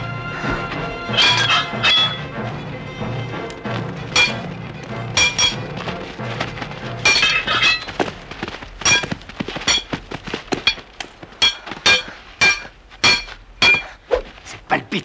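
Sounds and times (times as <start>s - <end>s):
sword blades clashing: 1.0s - 2.3s, 4.1s - 4.6s, 5.2s - 5.7s, 7.0s - 7.9s, 9.7s - 9.9s, 11.4s - 14.0s.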